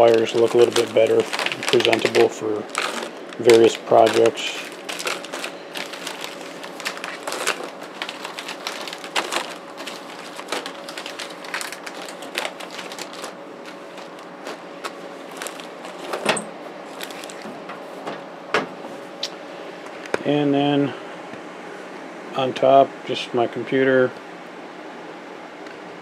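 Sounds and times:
plastic bags crinkling: 0.0s - 17.6s
rummaging through metal drawer: 0.0s - 18.2s
faint steady hum: 0.0s - 26.0s.

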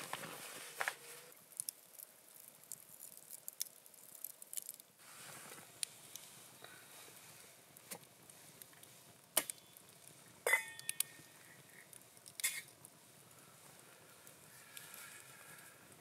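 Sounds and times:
metal lid clinking on pot: 10.5s - 11.0s.

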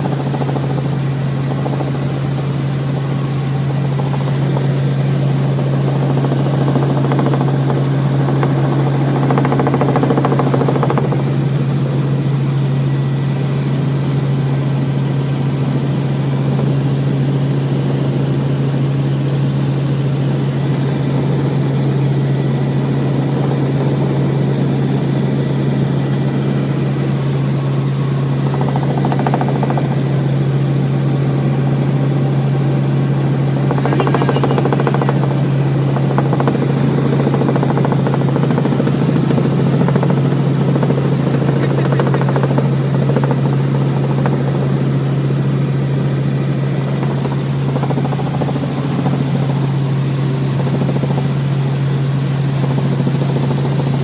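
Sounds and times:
helicopter engine and rotor drone: 0.0s - 54.0s.

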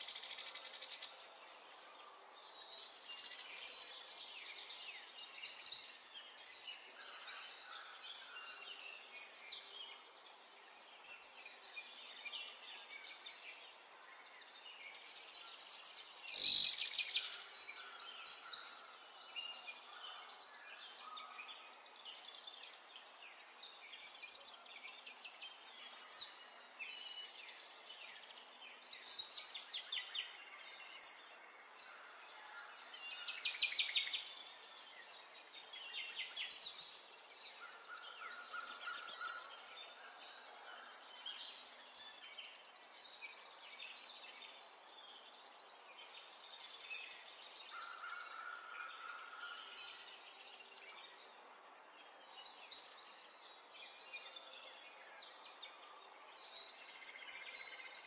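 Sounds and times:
songbirds chirping and trilling: 0.0s - 58.0s.

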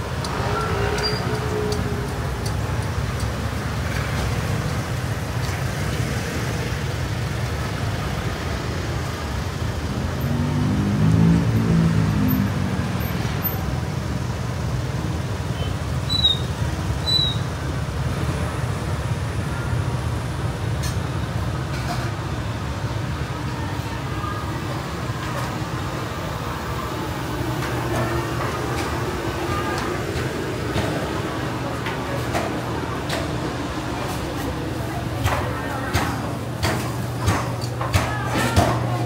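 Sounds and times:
low traffic rumble: 0.0s - 39.0s
short high squeaks: 0.4s - 1.8s, 15.6s - 17.5s
vehicle engine passing: 9.8s - 13.4s.

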